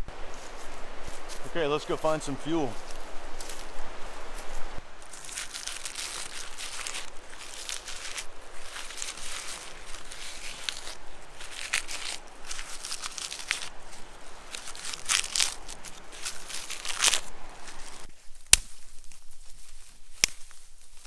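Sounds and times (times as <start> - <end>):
bark tearing and crackling: 5.0 - 21.0.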